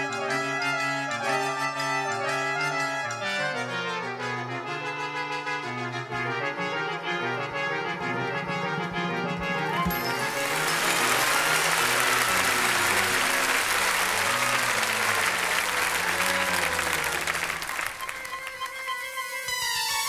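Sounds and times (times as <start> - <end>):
backing music: 0.0 - 20.0
audience applauding: 9.8 - 19.7.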